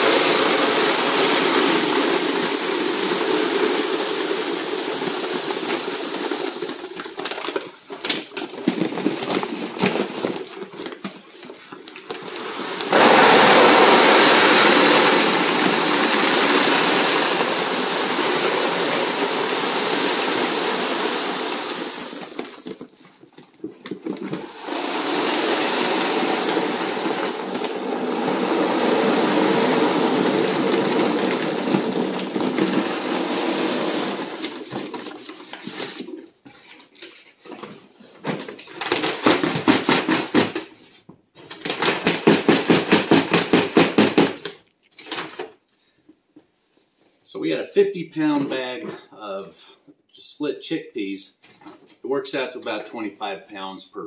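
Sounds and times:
beans pouring into foil bag: 0:00.0 - 0:08.4, 0:12.1 - 0:23.0, 0:24.4 - 0:35.2.

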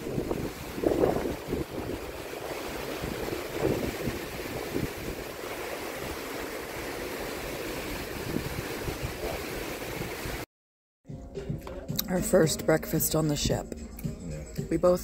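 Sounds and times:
wind buffeting microphone: 0:00.0 - 0:10.4
sea water rushing along ship: 0:00.0 - 0:10.5.

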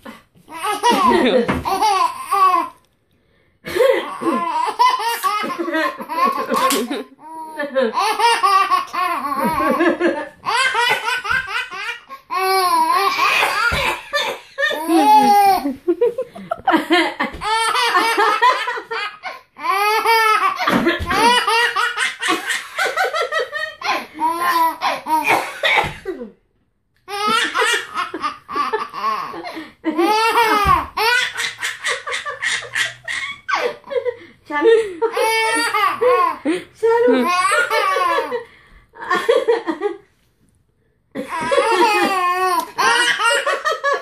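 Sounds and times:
toddler laughing: 0:00.5 - 0:02.8, 0:03.7 - 0:16.0, 0:17.3 - 0:23.2, 0:23.8 - 0:25.4, 0:27.1 - 0:33.9, 0:35.1 - 0:36.4, 0:41.2 - 0:44.0.

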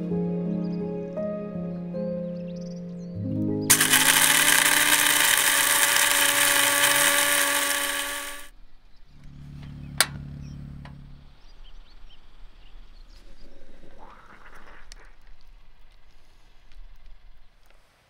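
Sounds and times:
low hum: 0:03.1 - 0:17.8
small motor whirring: 0:03.7 - 0:08.6.

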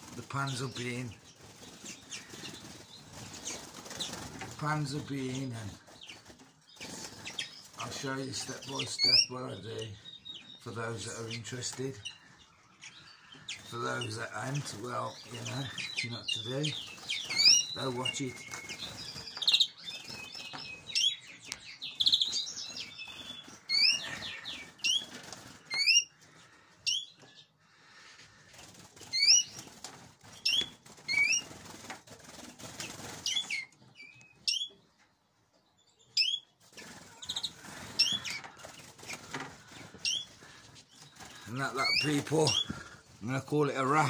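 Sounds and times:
wing flutters: 0:00.0 - 0:08.4, 0:22.7 - 0:26.1, 0:28.3 - 0:33.7, 0:36.6 - 0:43.0
finches calling: 0:06.0 - 0:27.5, 0:29.1 - 0:29.6, 0:37.2 - 0:44.0.

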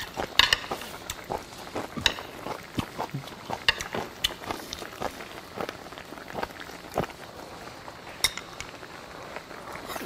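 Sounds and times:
chopsticks clicking on dishes: 0:02.0 - 0:02.6.

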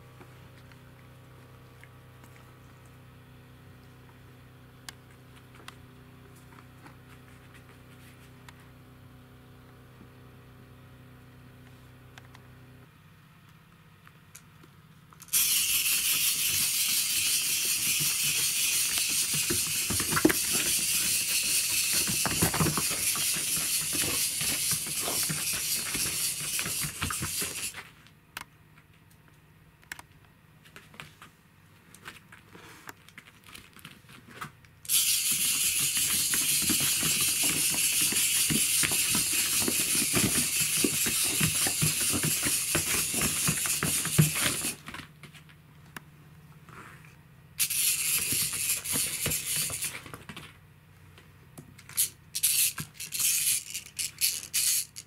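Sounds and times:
wind-up toy whirring: 0:15.2 - 0:27.8, 0:34.8 - 0:44.8, 0:47.6 - 0:50.1, 0:51.8 - 0:55.0.

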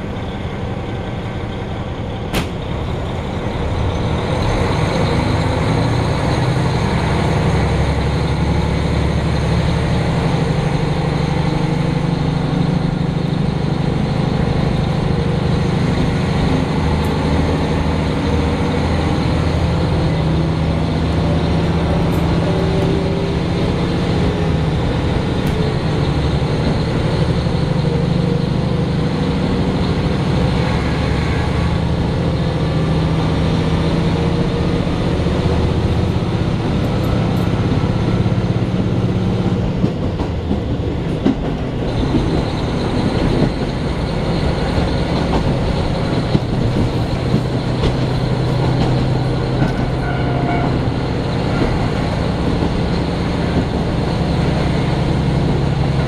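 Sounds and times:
diesel engine drone: 0:00.0 - 0:56.0
wheel and rail noise: 0:00.0 - 0:56.0
sharp click: 0:02.3 - 0:02.7.

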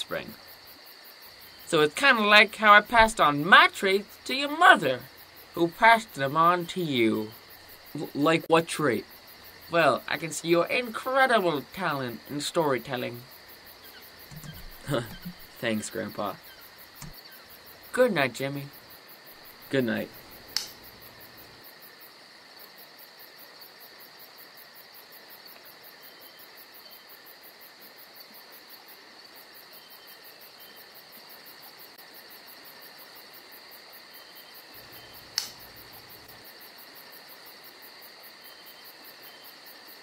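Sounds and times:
crickets chirping: 0:00.0 - 0:40.0
sharp click: 0:20.5 - 0:20.8, 0:35.3 - 0:35.6.

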